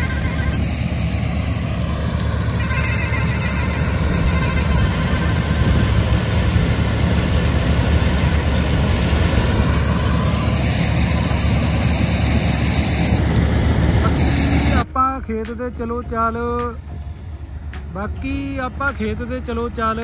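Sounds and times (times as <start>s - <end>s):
loud rushing noise: 0.0s - 15.8s
combine harvester running: 0.0s - 20.0s.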